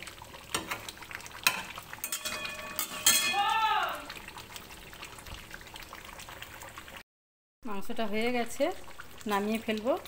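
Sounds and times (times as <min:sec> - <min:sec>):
curry sizzling: 0:00.0 - 0:07.0, 0:07.7 - 0:10.0
spoon clinking against pot: 0:01.4 - 0:03.4
metal spoon scraping a pot: 0:01.5 - 0:03.3.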